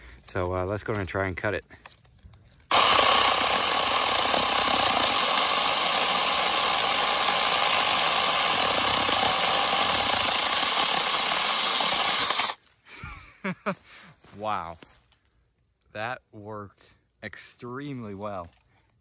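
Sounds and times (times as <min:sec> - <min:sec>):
electric chainsaw cutting wood: 0:02.7 - 0:12.6.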